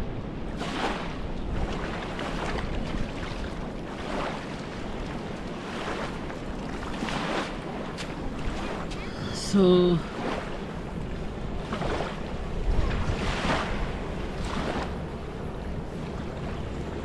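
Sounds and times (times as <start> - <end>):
small waves washing in: 0.0 - 17.0
wind on microphone: 0.0 - 17.0.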